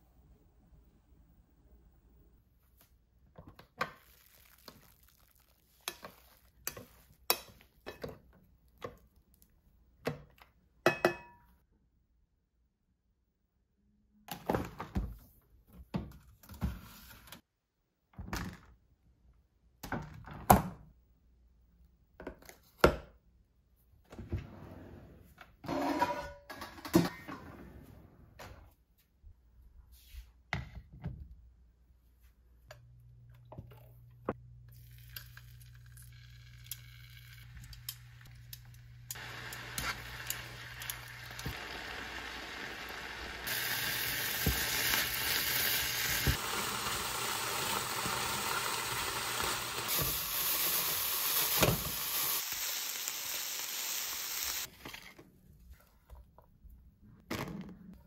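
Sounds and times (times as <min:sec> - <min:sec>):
chicken sizzling in a frying pan: 0:36.1 - 0:54.7.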